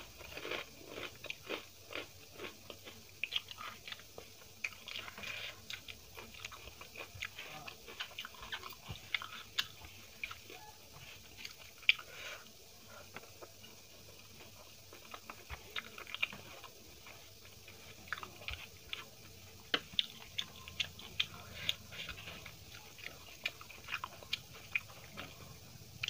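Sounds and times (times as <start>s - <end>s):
chewing and mouth sounds: 0.0s - 26.0s.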